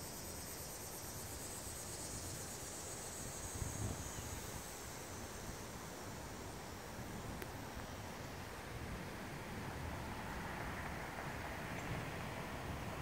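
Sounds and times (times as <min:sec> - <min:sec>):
insects chirring: 0:00.0 - 0:08.0.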